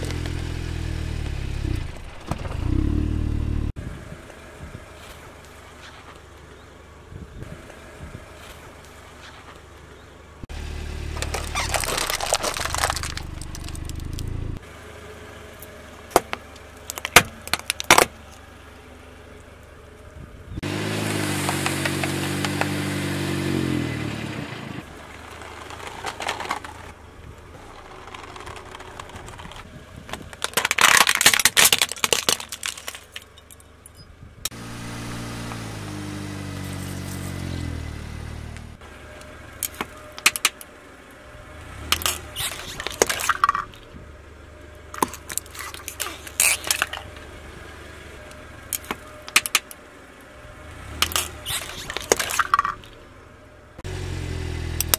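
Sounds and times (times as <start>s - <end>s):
car engine running: 0.0s - 4.9s, 7.4s - 54.9s
tyre crushing floral foam: 11.2s - 14.1s
sharp cracks and clicks: 39.6s - 40.7s, 48.3s - 49.8s.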